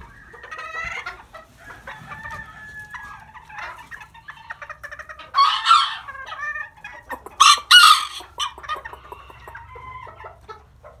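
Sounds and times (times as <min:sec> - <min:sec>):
chickens clucking: 0:00.0 - 0:11.0
rooster crowing: 0:01.6 - 0:03.3, 0:05.4 - 0:06.1, 0:07.4 - 0:10.2.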